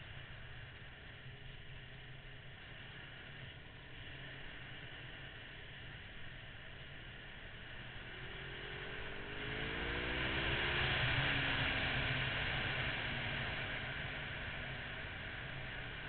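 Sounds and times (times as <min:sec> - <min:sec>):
motorcycle engine accelerating: 0:07.6 - 0:16.0.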